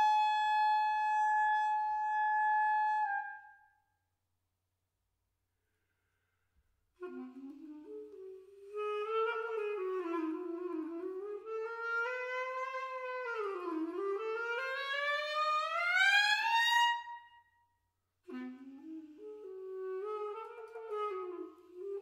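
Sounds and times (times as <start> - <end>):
clarinet playing sliding line: 0.0 - 3.5, 7.0 - 17.2, 18.3 - 22.0.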